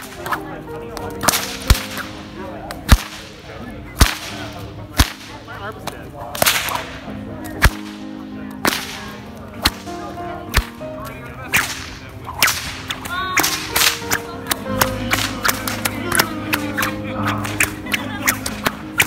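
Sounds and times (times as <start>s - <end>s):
whip cracking: 0.0s - 0.4s, 1.2s - 2.2s, 2.8s - 3.4s, 4.0s - 5.4s, 6.4s - 8.0s, 8.6s - 9.9s, 10.5s - 10.8s, 11.5s - 19.0s
whip swishing: 0.0s - 0.4s, 1.2s - 2.2s, 2.9s - 3.3s, 4.0s - 5.3s, 6.4s - 8.0s, 8.6s - 9.9s, 10.5s - 10.8s, 11.5s - 19.0s.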